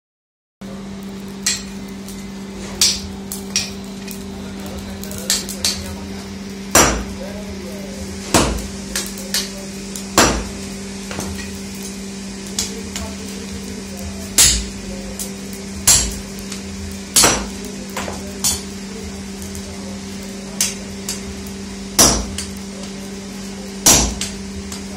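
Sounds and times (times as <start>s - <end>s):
steady low hum: 0.6s - 24.9s
hammer striking iron on anvil: 1.4s - 1.8s, 2.8s - 3.8s, 5.0s - 5.9s, 6.7s - 7.2s, 8.3s - 9.5s, 10.2s - 11.6s, 14.4s - 14.8s, 15.8s - 16.2s, 17.1s - 18.7s, 20.6s - 21.2s, 22.0s - 22.6s, 23.8s - 24.8s.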